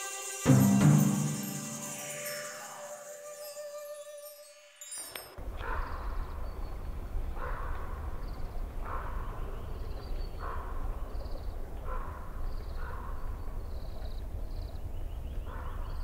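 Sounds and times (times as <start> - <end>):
small birds chirping: 4.9 - 16.0.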